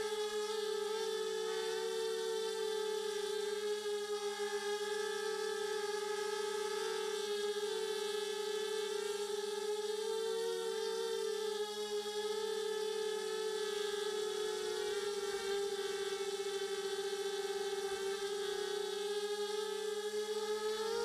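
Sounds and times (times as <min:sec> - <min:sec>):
quadcopter motors whining: 0:00.0 - 0:21.0.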